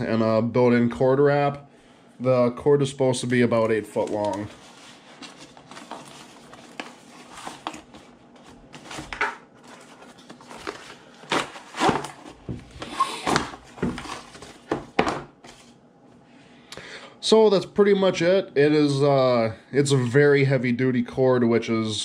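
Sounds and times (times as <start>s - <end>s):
cardboard box handled: 4.1s - 15.6s.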